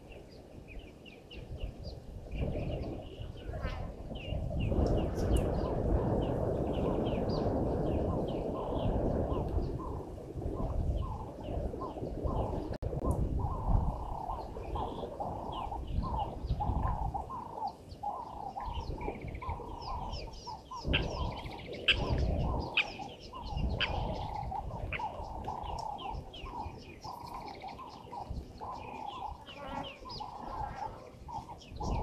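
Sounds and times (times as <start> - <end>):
birds calling: 0.0 - 12.7, 13.4 - 32.0
bird chirps and trills: 13.4 - 32.0.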